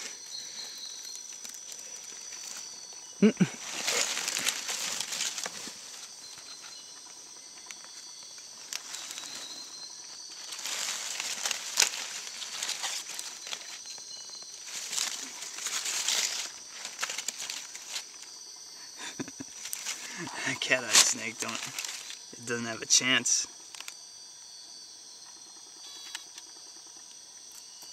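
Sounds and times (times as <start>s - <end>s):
dry leaves rustling and crackling: 0.0s - 18.4s, 19.4s - 22.4s.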